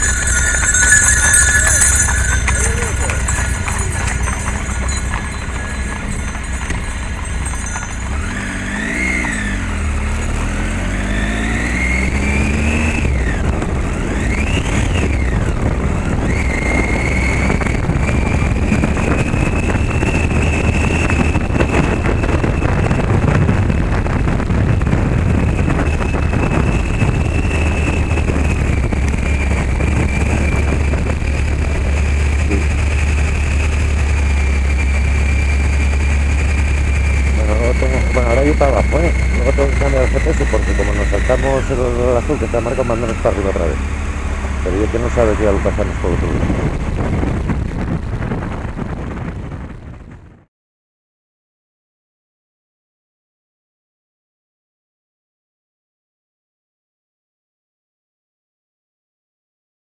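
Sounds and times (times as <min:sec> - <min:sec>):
vehicles passing by: 0:00.0 - 0:50.4
motorcycle engine running: 0:00.0 - 0:50.5
wind and road noise: 0:00.0 - 0:50.5.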